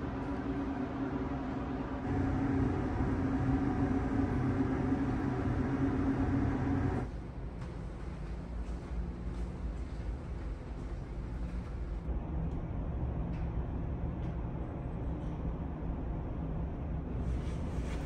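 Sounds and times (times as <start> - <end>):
machinery drone: 0.0 - 7.1.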